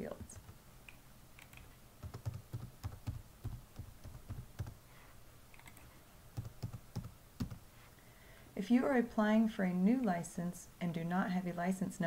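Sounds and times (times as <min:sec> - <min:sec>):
typing on computer keyboard: 0:01.4 - 0:04.8, 0:05.5 - 0:07.6.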